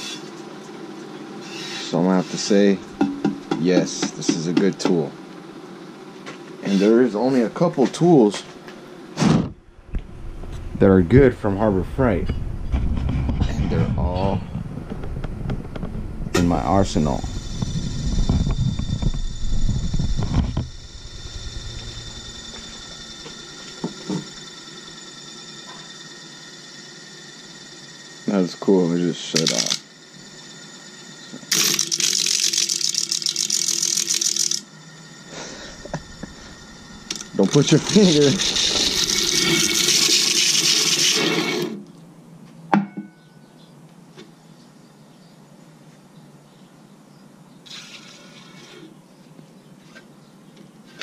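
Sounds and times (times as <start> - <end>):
disc sander motor running: 16.6 - 41.8.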